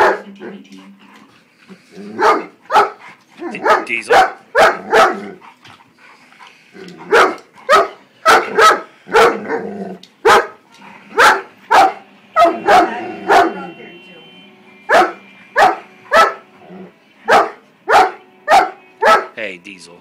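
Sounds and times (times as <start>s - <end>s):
dog barking: 0.0s - 0.6s, 2.1s - 5.4s, 7.0s - 13.7s, 14.9s - 16.5s, 17.3s - 19.4s.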